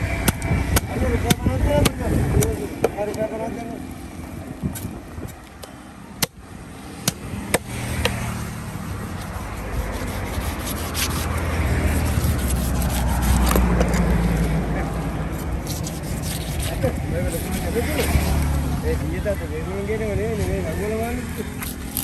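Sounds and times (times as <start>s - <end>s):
knife scraping fish scales: 8.0s - 14.2s, 15.3s - 18.5s, 21.3s - 22.0s.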